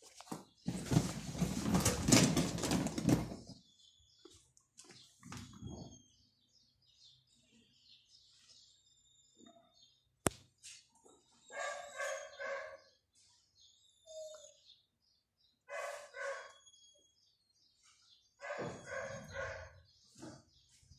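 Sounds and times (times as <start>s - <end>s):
birds chirping: 0.0s - 20.9s.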